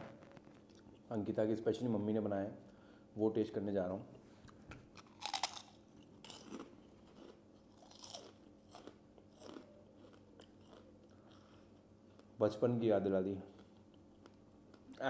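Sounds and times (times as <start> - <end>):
crunching papad being chewed: 4.5 - 12.4, 13.5 - 15.0.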